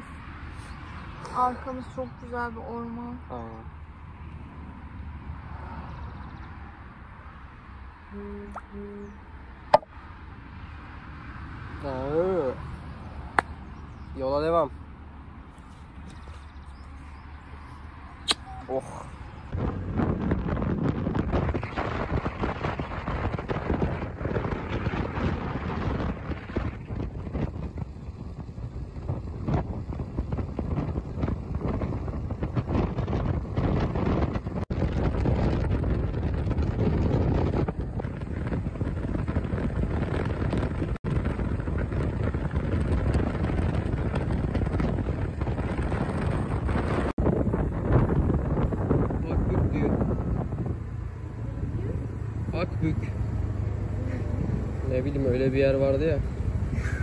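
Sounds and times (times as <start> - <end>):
road noise: 0.0 - 57.0
wind buffeting microphone: 15.7 - 57.0.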